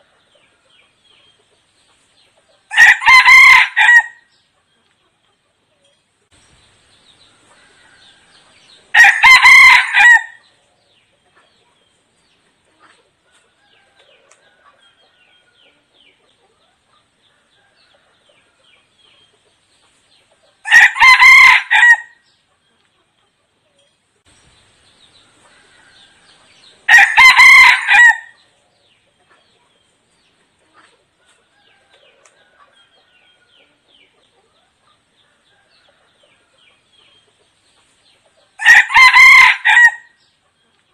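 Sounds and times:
rooster crowing: 2.7 - 4.2, 7.5 - 10.4, 20.6 - 22.2, 25.5 - 28.4, 38.6 - 40.1.

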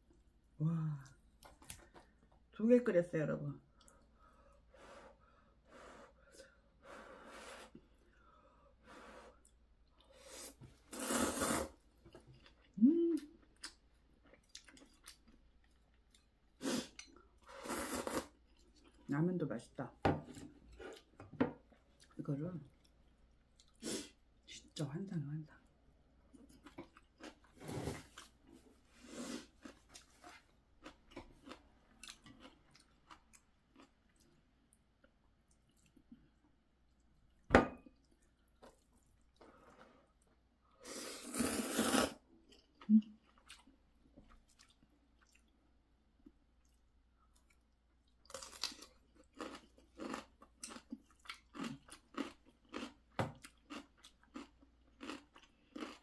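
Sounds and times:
slurping noodles: 10.1 - 11.8, 16.6 - 18.4, 40.8 - 42.2
chewing food: 12.0 - 17.5, 26.3 - 28.6, 29.5 - 40.4, 42.4 - 56.0
crunchy chewing: 48.3 - 56.0.

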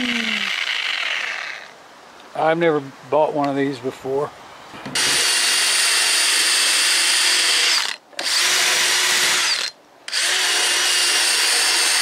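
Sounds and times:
drill whine: 0.0 - 1.7, 5.0 - 12.0.

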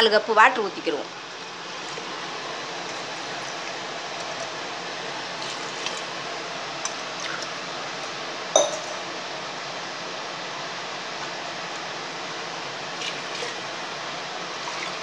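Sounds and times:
water pouring into a pot: 1.8 - 7.6, 14.5 - 15.0
sharp metal clink: 8.6 - 9.0.

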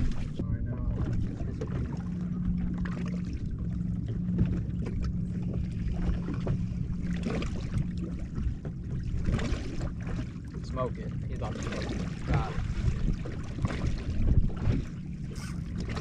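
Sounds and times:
wind on microphone: 0.0 - 2.0, 11.3 - 16.0
low motor hum: 0.0 - 16.0
waves slapping boat hull: 0.0 - 16.0.

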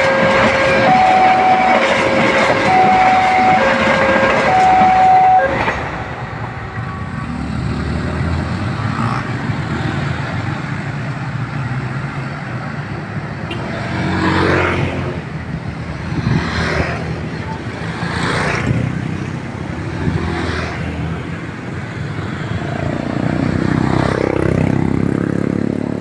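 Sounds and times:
level crossing alarm: 0.0 - 5.8
passing train rumble: 0.0 - 26.0
vehicle passing: 4.5 - 12.8, 13.5 - 26.0
motorcycle and car engines: 5.8 - 26.0.

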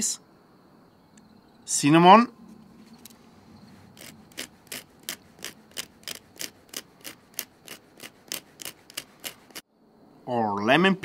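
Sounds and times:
cinnamon stick rasping on saw blade: 3.9 - 9.6.

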